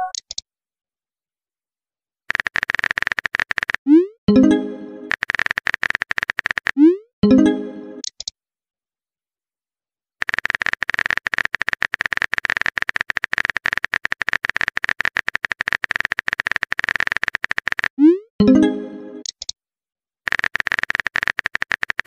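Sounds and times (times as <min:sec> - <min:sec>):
keyboard typing clicks: 0:02.3 - 0:06.9, 0:20.3 - 0:22.0
message chime: 0:04.3 - 0:05.1, 0:07.2 - 0:08.0, 0:18.4 - 0:19.2.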